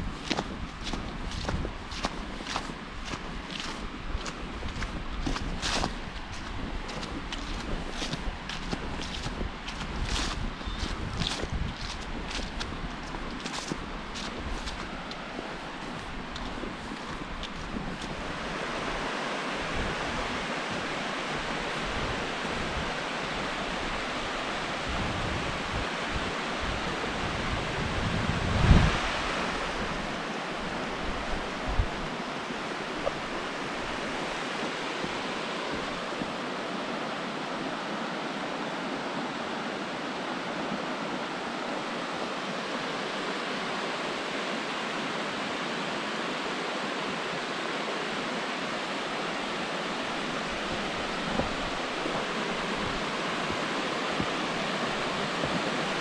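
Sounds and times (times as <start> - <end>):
wind buffeting microphone: 0.0 - 36.4, 50.0 - 56.0
waterfall rushing: 5.9 - 56.0.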